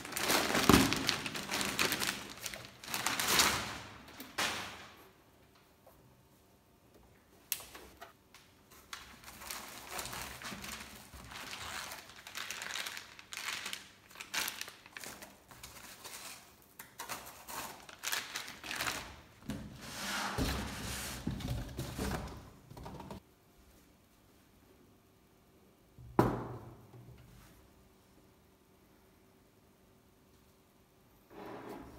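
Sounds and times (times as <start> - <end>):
foam packaging rustling: 0.0 - 4.2, 8.7 - 22.4
plastic wrap crinkling: 0.0 - 4.4, 8.7 - 19.4.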